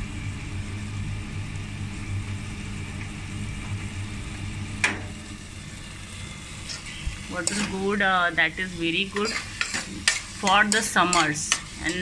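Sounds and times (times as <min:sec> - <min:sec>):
steady low hum: 0:00.0 - 0:12.0
food sizzling in a pressure cooker: 0:04.2 - 0:12.0.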